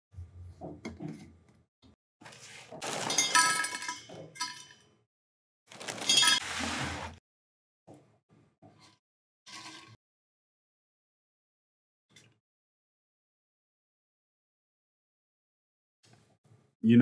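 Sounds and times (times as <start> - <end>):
cereal rattling into metal bottle: 5.7 - 6.4.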